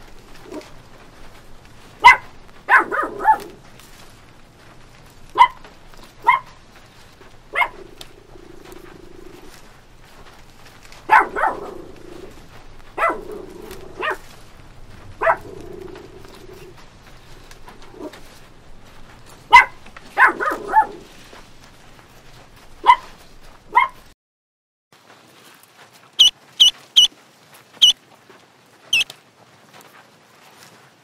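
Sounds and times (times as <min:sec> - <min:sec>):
puppies yipping and barking: 0:00.0 - 0:04.0, 0:05.3 - 0:18.4, 0:19.4 - 0:21.4, 0:22.8 - 0:24.1, 0:26.2 - 0:27.1.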